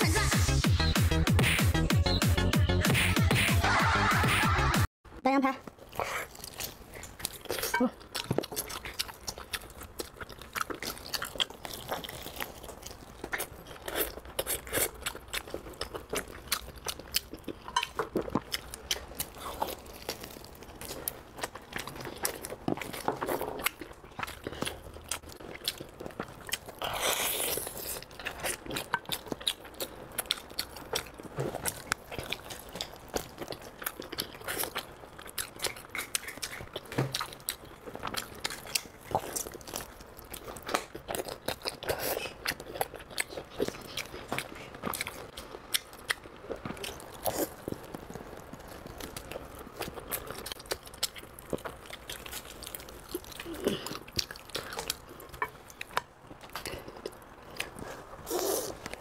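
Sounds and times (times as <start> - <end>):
wet biting and chewing: 5.8 - 59.0.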